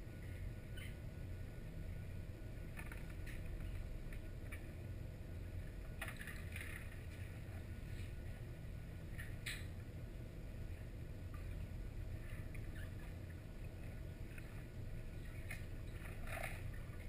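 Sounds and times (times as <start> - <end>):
faint clicks and crackles: 2.6 - 4.9, 10.8 - 17.0.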